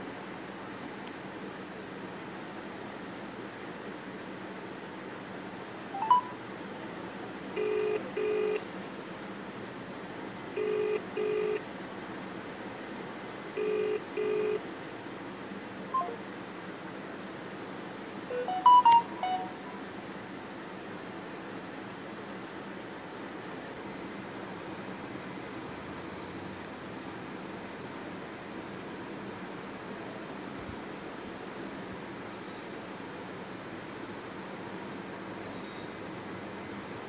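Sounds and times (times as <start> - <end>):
phone ringback tone: 6.0 - 6.4, 7.6 - 8.6, 10.6 - 11.6, 13.6 - 14.6, 16.0 - 16.2, 18.3 - 19.8
quick run of beeps: 16.0 - 16.2.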